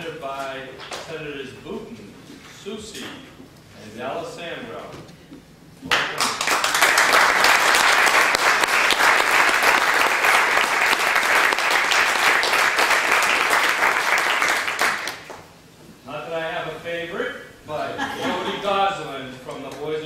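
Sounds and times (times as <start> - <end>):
audience applauding: 5.9 - 15.5.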